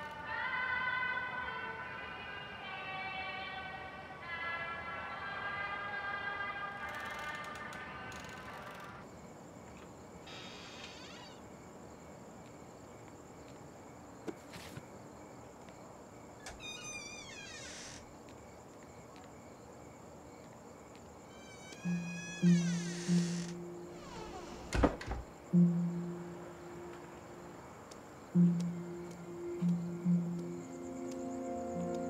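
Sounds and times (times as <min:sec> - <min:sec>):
crickets trilling: 0:06.4 - 0:32.0
falling chirps: 0:21.3 - 0:27.6.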